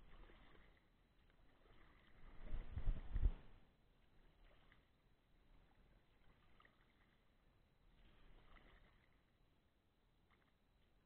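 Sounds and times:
paddle splashing in water: 0.0s - 3.2s, 4.1s - 7.2s, 7.9s - 9.3s.

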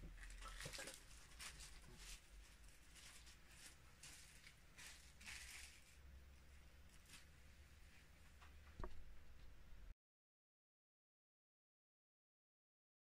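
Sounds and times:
low steady hum: 0.0s - 9.9s
soft rustles: 0.2s - 6.0s, 6.8s - 9.6s.

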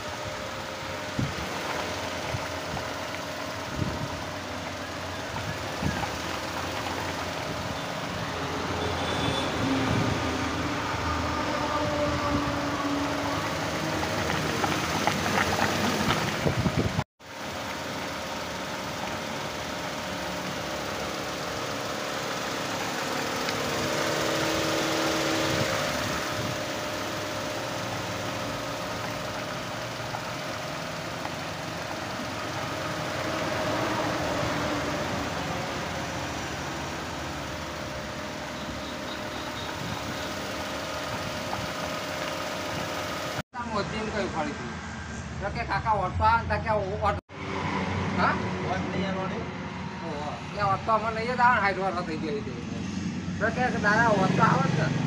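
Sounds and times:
car engine idling: 0.0s - 43.4s.

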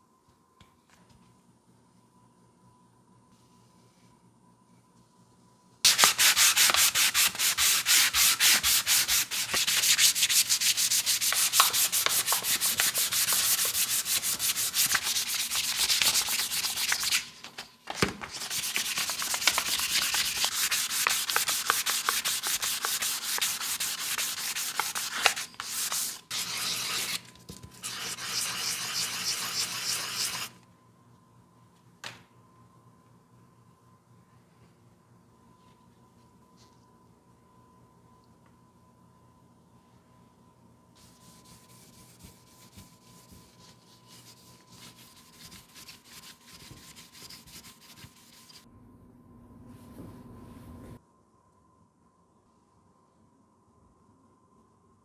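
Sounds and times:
sandpaper on wood: 5.9s - 17.2s, 18.4s - 27.2s, 27.8s - 30.5s, 43.8s - 48.6s.

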